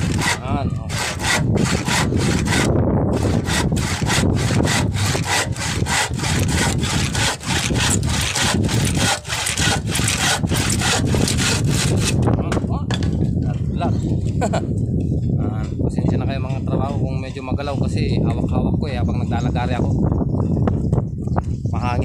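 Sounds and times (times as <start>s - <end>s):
handsaw cutting wood: 0.0s - 12.2s.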